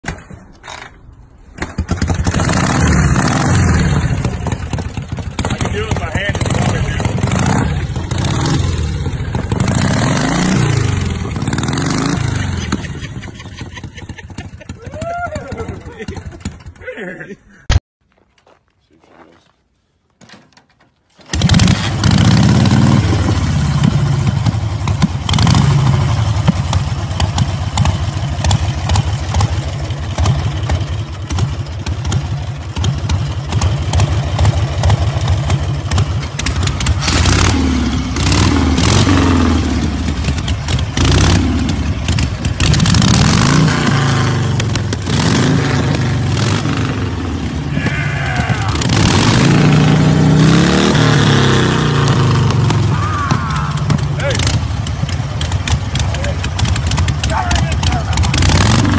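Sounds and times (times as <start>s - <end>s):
motorcycle kick-started: 0.1s - 3.2s, 15.4s - 16.8s, 20.5s - 47.0s, 53.5s - 58.9s
motorcycle engine revving: 1.6s - 16.8s, 21.3s - 58.9s.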